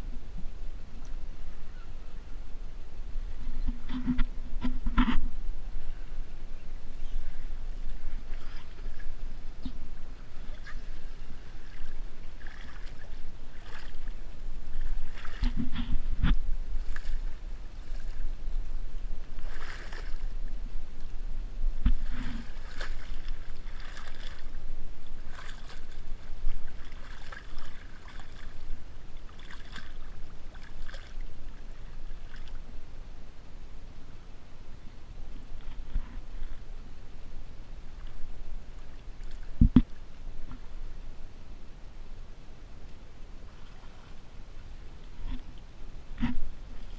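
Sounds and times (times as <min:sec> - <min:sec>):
steady low rumble: 0:00.0 - 0:46.9
reeds scraping along kayak: 0:06.6 - 0:32.6, 0:35.4 - 0:36.9.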